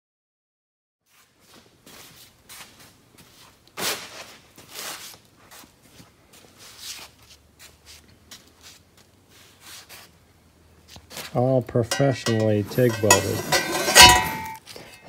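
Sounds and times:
soft scuffing and rustling: 1.0s - 10.2s, 10.8s - 11.6s.

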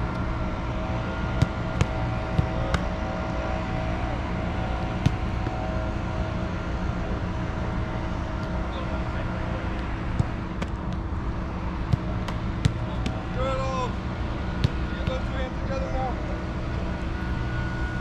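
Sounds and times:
soccer balls being kicked: 1.0s - 6.2s, 8.2s - 8.8s, 9.6s - 13.4s, 14.3s - 15.4s.

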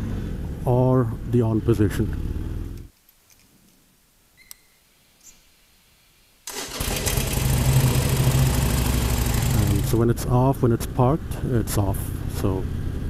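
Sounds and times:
motorcycle engine starting and idling: 6.5s - 10.3s.

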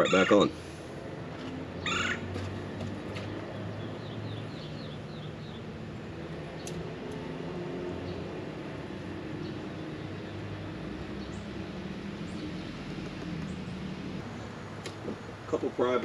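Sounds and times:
bird chirping: 3.3s - 8.4s, 9.0s - 14.2s.

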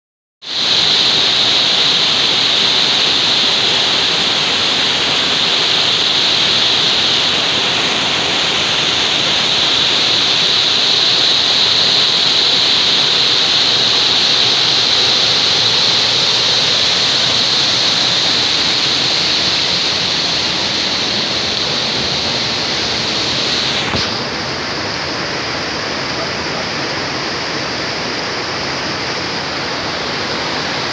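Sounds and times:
waterfall rushing over rocks: 0.4s - 30.9s.

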